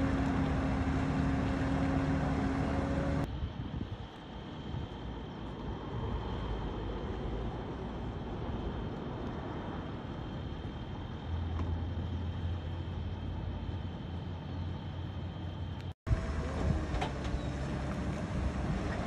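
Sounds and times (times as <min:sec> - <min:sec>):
low hum: 0:00.0 - 0:03.3
tow truck engine running: 0:00.0 - 0:03.3, 0:15.6 - 0:19.0.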